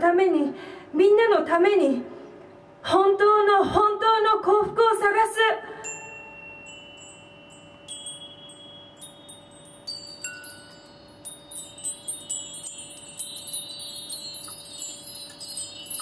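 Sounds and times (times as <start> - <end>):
chimes ringing: 5.8 - 16.0.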